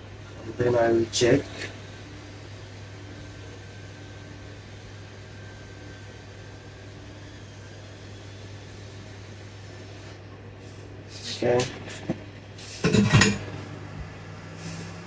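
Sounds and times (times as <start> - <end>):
hot-air gun blowing: 1.5 - 15.0.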